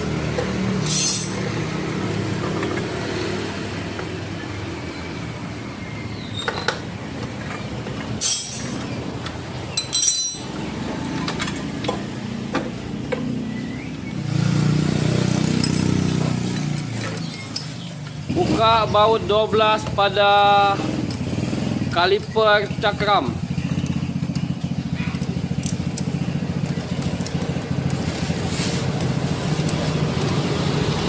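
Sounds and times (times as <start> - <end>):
wrench clinking on metal bolts: 0.8 - 1.5, 8.2 - 8.9, 9.7 - 10.6.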